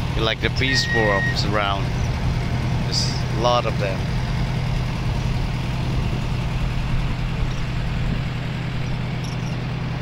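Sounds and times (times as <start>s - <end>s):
boat engine humming: 0.0s - 10.0s.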